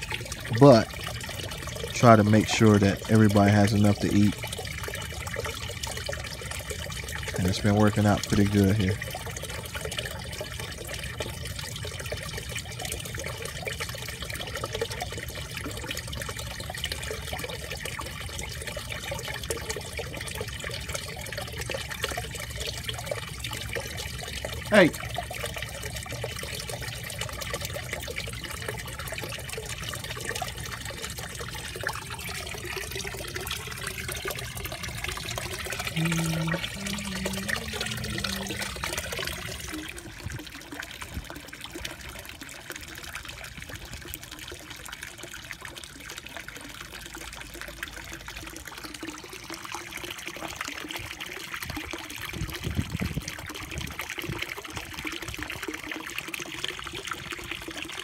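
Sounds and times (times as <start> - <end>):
water trickling into pond: 0.0 - 58.0
brief low tones: 35.9 - 39.2.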